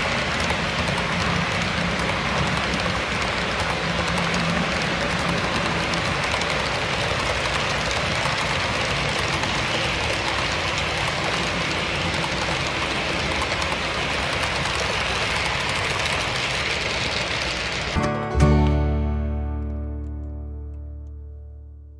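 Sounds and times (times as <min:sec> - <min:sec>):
model train rolling: 0:00.0 - 0:19.7
acoustic guitar strumming: 0:18.0 - 0:21.7.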